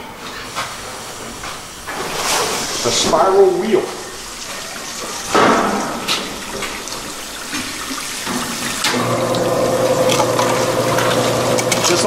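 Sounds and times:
water spraying and running: 0:00.2 - 0:12.0
steady machine hum: 0:02.8 - 0:12.0.

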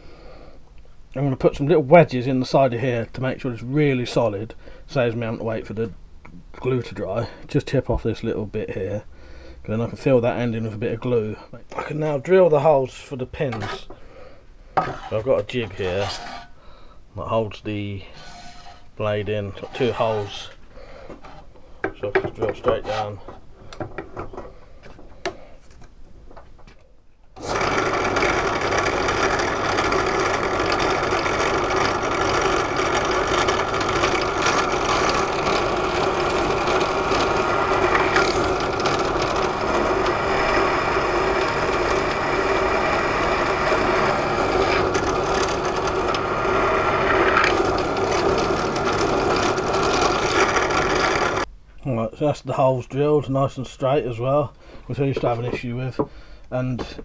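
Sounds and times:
drill press drilling metal: 0:27.4 - 0:51.4.

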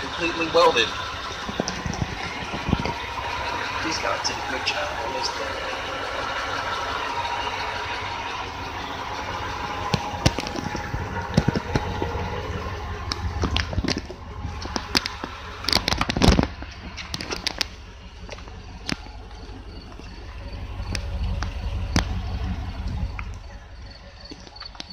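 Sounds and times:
truck engine idling: 0:00.0 - 0:24.9
sharp clicks and knocks: 0:01.2 - 0:03.8, 0:09.7 - 0:19.2.

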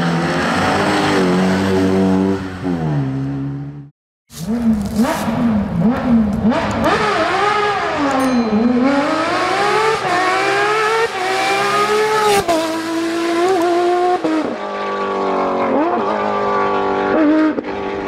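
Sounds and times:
rally car engines revving: 0:00.0 - 0:18.0.

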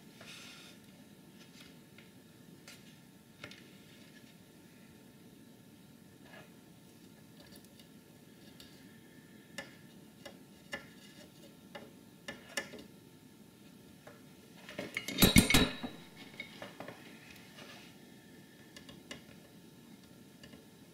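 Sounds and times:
clattering handling noise: 0:14.6 - 0:17.0.

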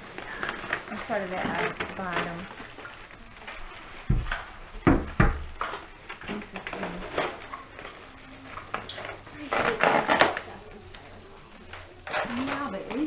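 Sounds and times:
styrofoam rustling: 0:00.0 - 0:13.0.

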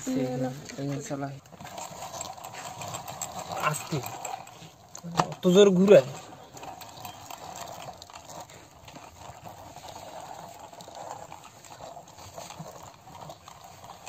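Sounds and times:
plastic toy wheels rolling on concrete: 0:00.0 - 0:14.0.

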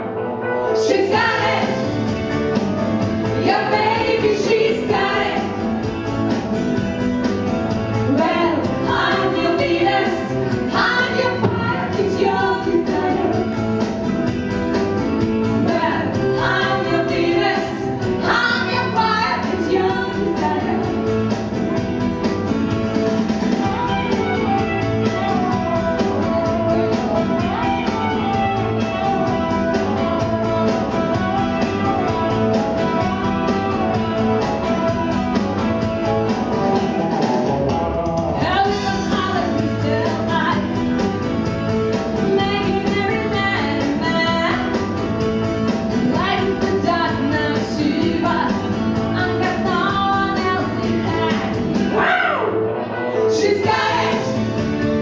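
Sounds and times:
instrumental accompaniment: 0:00.0 - 0:55.0
women singing into microphones: 0:00.8 - 0:01.8, 0:03.4 - 0:05.6, 0:08.1 - 0:13.4, 0:15.6 - 0:20.9, 0:38.4 - 0:40.6, 0:42.3 - 0:44.6, 0:46.1 - 0:52.1, 0:53.3 - 0:54.4.

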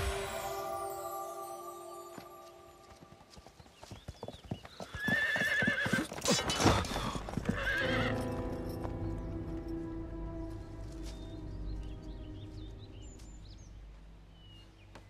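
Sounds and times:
background music: 0:00.0 - 0:03.2, 0:07.4 - 0:15.0
hoofbeats on dirt: 0:02.3 - 0:15.0
horse whinnying: 0:05.0 - 0:08.2.

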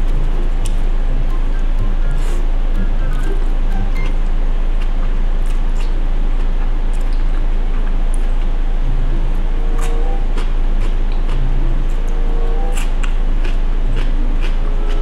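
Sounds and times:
steady low hum: 0:00.0 - 0:15.0
person eating noodles: 0:09.4 - 0:15.0.

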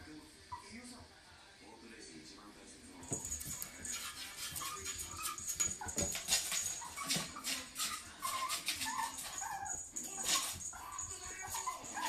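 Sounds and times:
scratching at wooden door: 0:03.2 - 0:12.0
puppy whining: 0:03.8 - 0:12.0.

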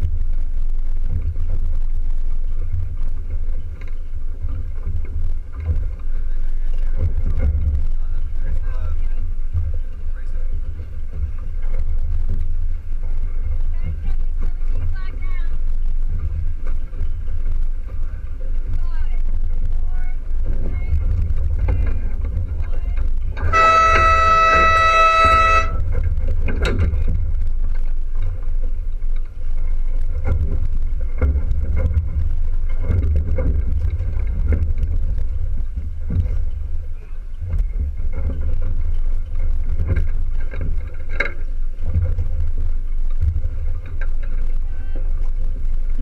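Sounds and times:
wind rumble on microphone: 0:00.0 - 0:46.0
horn blast: 0:23.4 - 0:26.0.

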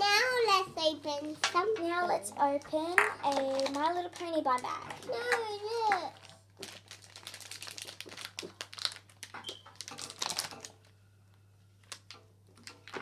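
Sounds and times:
foil packets crinkling: 0:03.2 - 0:11.0, 0:11.8 - 0:13.0.

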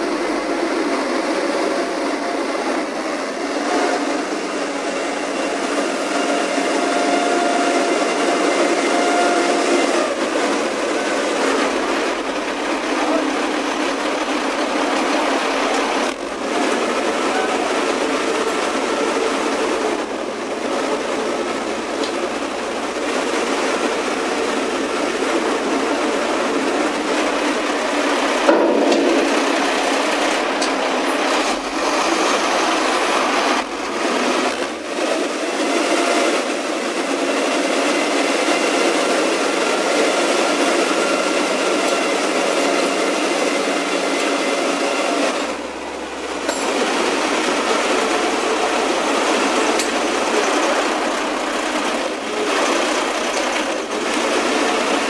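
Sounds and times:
diesel engine drone of machinery: 0:00.0 - 0:55.0
steady tones: 0:23.8 - 0:34.0.

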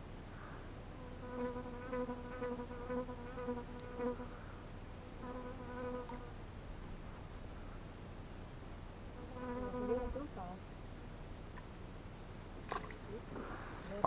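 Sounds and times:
flying insect buzzing: 0:00.9 - 0:06.4, 0:09.1 - 0:10.5.

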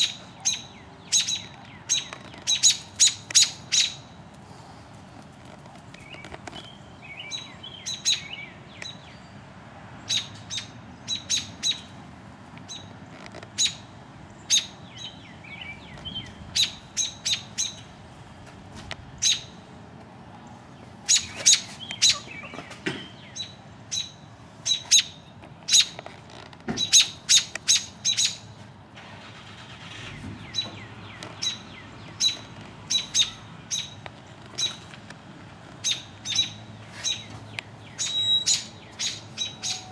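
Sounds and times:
birds giving sharp alarm calls: 0:00.0 - 0:04.2, 0:10.1 - 0:12.0, 0:12.7 - 0:18.0, 0:21.0 - 0:26.1, 0:26.8 - 0:28.6, 0:29.5 - 0:34.9, 0:35.8 - 0:39.9.

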